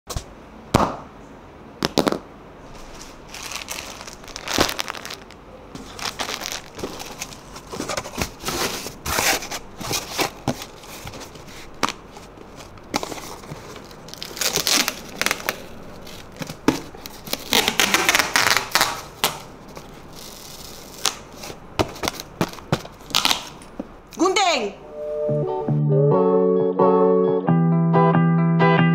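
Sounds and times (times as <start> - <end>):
cardboard rustling: 2.7 - 23.9
cardboard box creasing and knocking: 5.9 - 14.4.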